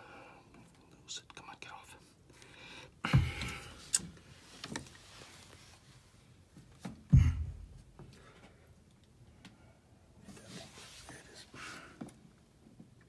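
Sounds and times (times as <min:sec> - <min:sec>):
dull thumps on wooden floor: 0:03.1 - 0:03.6, 0:06.8 - 0:08.0.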